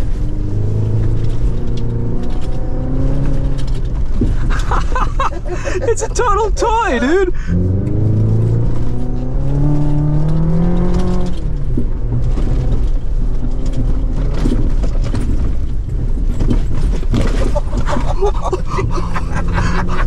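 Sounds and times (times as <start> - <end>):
turbocharged engine revving: 0.0 - 4.4, 7.3 - 14.7
tyres rumbling on dirt: 0.0 - 20.0
knocks and jolts from bumps: 11.8 - 18.8.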